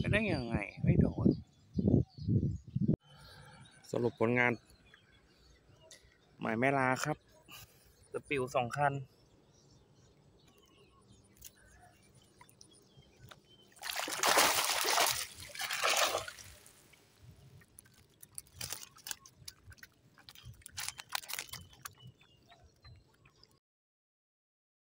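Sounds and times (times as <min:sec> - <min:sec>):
water sloshing and splashing: 0:12.2 - 0:23.6.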